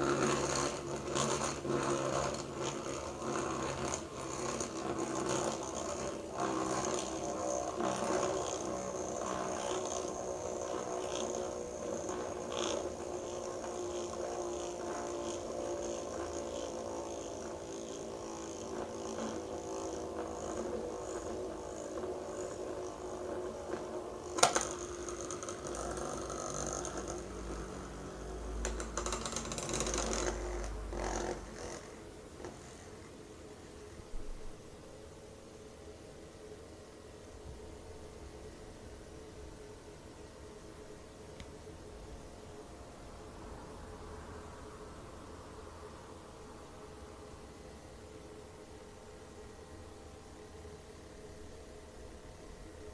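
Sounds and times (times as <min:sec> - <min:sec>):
gyroscope rattling against mat: 0:00.0 - 0:32.6
gyroscope whirring hum: 0:00.0 - 0:52.9.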